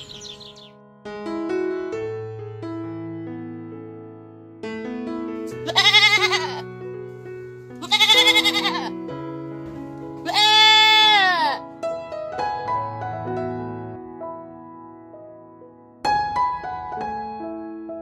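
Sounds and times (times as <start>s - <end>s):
gentle piano music: 0.0s - 18.0s
animal bleating: 5.6s - 6.7s, 7.8s - 9.0s, 10.2s - 11.6s.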